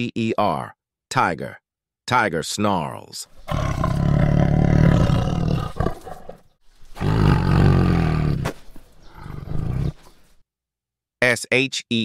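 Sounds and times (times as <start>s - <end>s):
tiger snarling: 3.3s - 10.4s.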